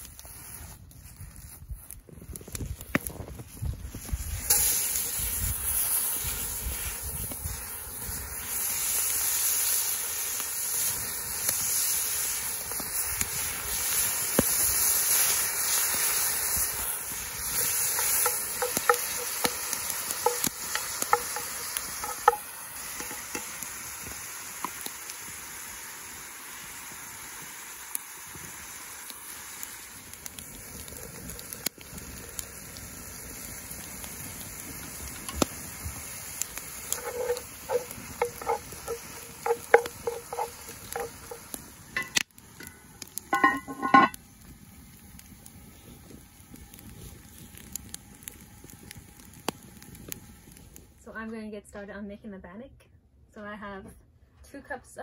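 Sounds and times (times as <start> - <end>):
meat sizzling in butter: 0.0 - 50.6
wooden spoon knocking pot: 17.9 - 23.5, 37.0 - 41.4, 42.0 - 42.2, 43.3 - 44.1.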